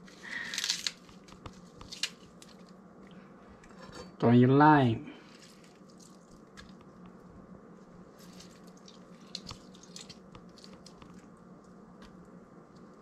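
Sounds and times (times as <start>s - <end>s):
wet squishing and dripping: 5.3s - 7.2s, 8.1s - 13.0s.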